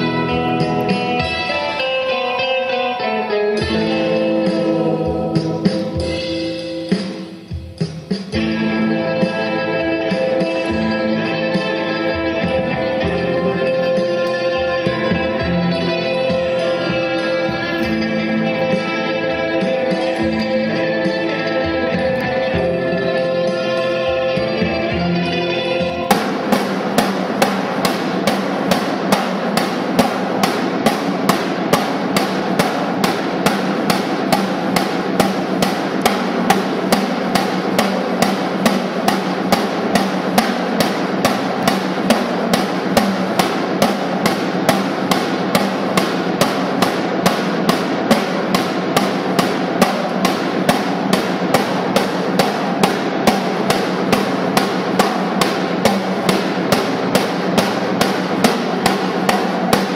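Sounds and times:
electric guitar music: 0:00.0 - 0:07.8, 0:08.4 - 0:46.4
snare drum rapid drumming: 0:26.1 - 0:59.9.

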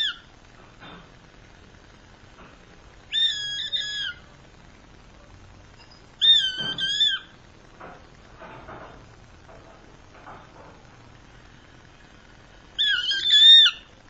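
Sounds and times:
hawk screaming: 0:03.1 - 0:04.2, 0:06.2 - 0:07.3, 0:12.8 - 0:13.9.

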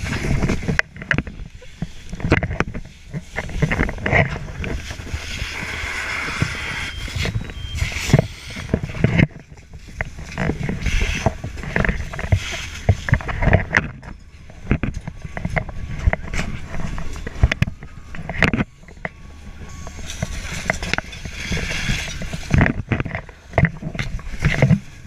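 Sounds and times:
gear knocking and rustling: 0:00.0 - 0:25.0
steady low rumble: 0:00.0 - 0:25.0
hiss: 0:05.2 - 0:08.7.

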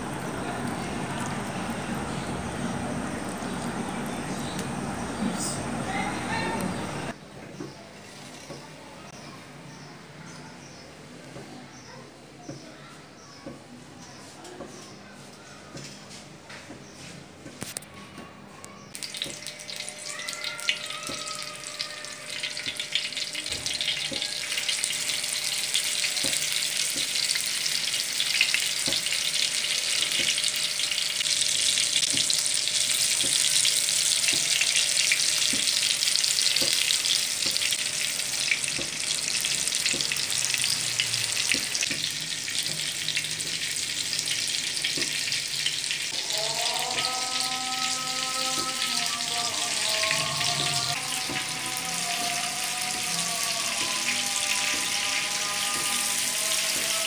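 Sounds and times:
meat patties sizzling in oil: 0:19.0 - 0:57.0.

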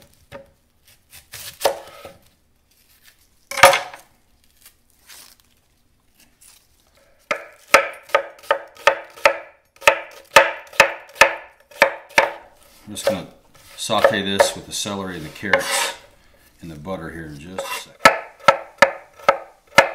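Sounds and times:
knife chopping onion on wooden board: 0:00.3 - 0:02.2, 0:03.5 - 0:04.0, 0:07.2 - 0:14.6, 0:15.2 - 0:16.0, 0:17.6 - 0:19.9.

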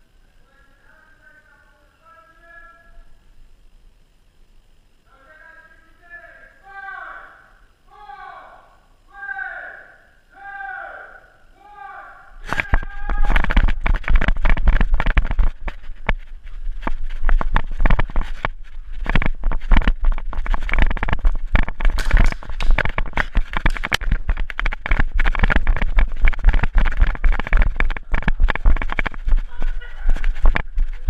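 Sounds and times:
gear rattling and knocking: 0:12.7 - 0:31.0
running footsteps on rubber floor: 0:12.7 - 0:31.0.

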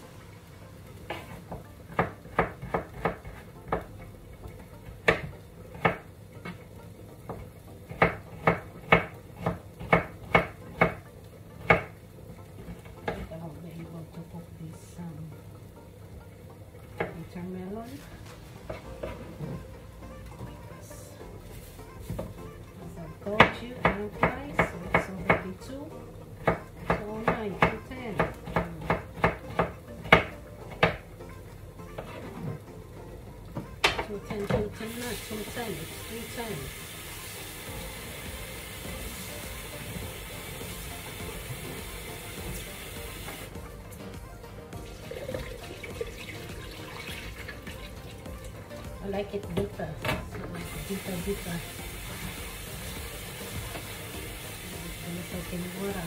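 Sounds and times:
knife chopping on cutting board: 0:07.3 - 0:11.0.

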